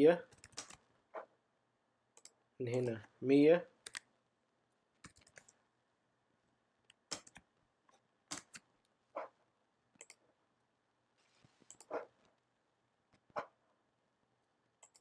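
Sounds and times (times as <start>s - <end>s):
computer mouse clicks: 0.3s - 0.8s, 2.2s - 2.9s, 3.8s - 4.1s, 5.0s - 5.6s, 6.9s - 7.5s, 10.0s - 10.2s, 11.6s - 12.0s, 14.8s - 15.0s
keyboard clicks: 0.3s - 0.8s, 2.2s - 3.0s, 3.8s - 4.1s, 5.0s - 5.6s, 7.0s - 7.5s, 8.3s - 8.7s, 10.0s - 10.2s, 11.7s - 12.0s, 14.8s - 15.0s.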